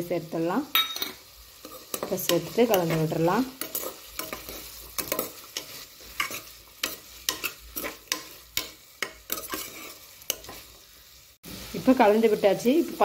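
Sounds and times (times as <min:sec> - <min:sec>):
metal ladle scraping pot: 0:00.8 - 0:10.6.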